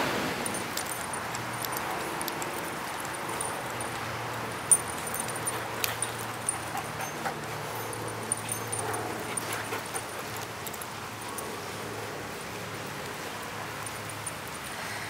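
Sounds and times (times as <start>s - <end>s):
sharp clicks and scuffles: 0.5s - 11.4s
dogs whimpering and yipping: 5.0s - 10.8s.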